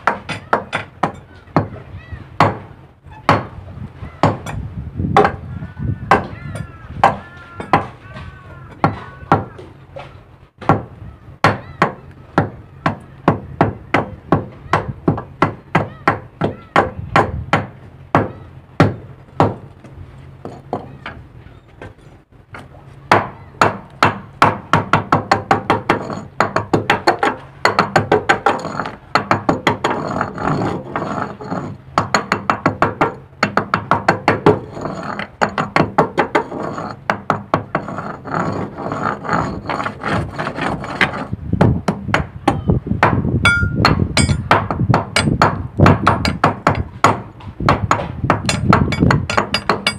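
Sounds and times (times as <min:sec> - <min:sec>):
hand hammer striking: 0:41.8 - 0:49.9.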